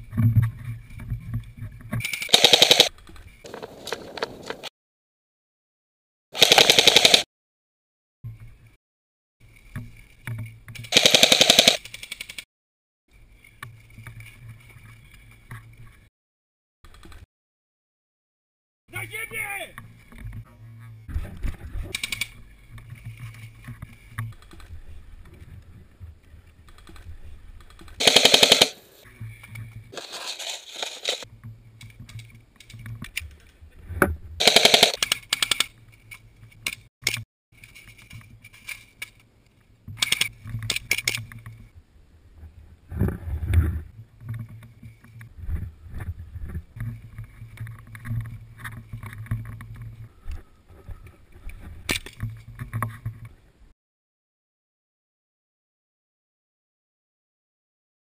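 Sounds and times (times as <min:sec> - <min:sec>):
airsoft rifle firing bursts: 0:02.3 - 0:02.9, 0:06.4 - 0:07.3, 0:10.9 - 0:11.8, 0:28.0 - 0:29.0, 0:34.4 - 0:35.6.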